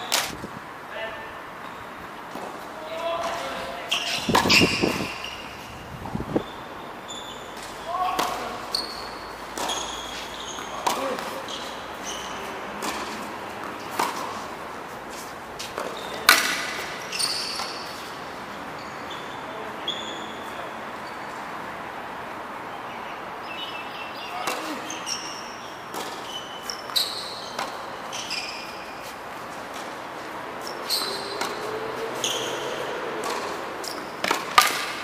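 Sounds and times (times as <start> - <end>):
tennis balls bouncing on hard court: 1.6 - 6.5, 7.1 - 18.2, 23.5 - 35.0
tennis balls struck by rackets: 2.2 - 6.3, 7.6 - 18.2, 24.3 - 25.0, 25.8 - 31.7, 32.4 - 35.0.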